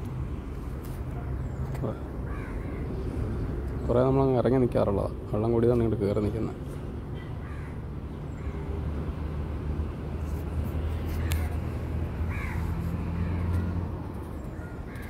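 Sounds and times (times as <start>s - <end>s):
vehicle engine hum: 0.0s - 15.0s
crow cawing: 2.2s - 3.0s, 7.2s - 8.8s, 12.3s - 13.8s.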